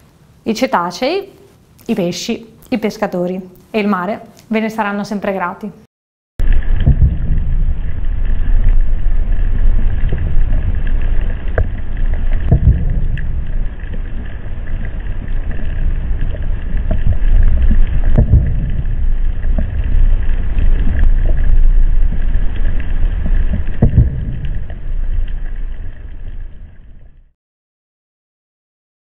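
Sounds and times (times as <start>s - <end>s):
low rumble of water noise: 6.4s - 27.4s.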